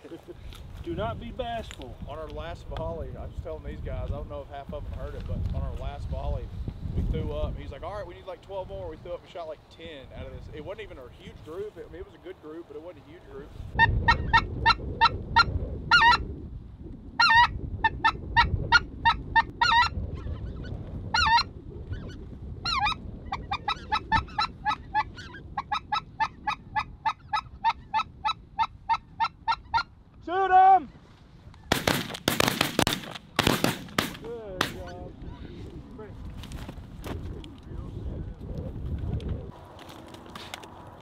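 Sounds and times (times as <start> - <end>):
snow goose calls: 13.8 - 16.2, 17.2 - 21.5, 22.6 - 29.9.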